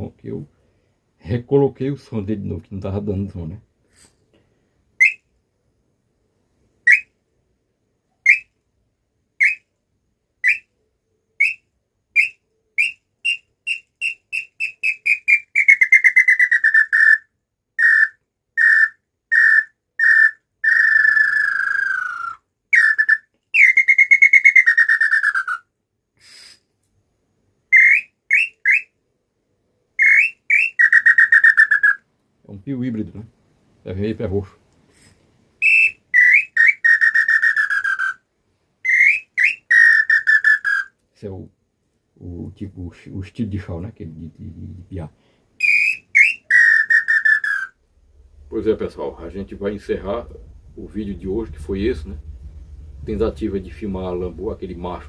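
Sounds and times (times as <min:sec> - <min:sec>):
wooden bird call whistle: 0:05.0 - 0:05.3, 0:06.8 - 0:07.2, 0:08.2 - 0:08.6, 0:09.4 - 0:09.7, 0:10.4 - 0:26.6, 0:27.7 - 0:29.0, 0:30.0 - 0:32.0, 0:35.6 - 0:38.2, 0:38.8 - 0:41.0, 0:45.6 - 0:47.8.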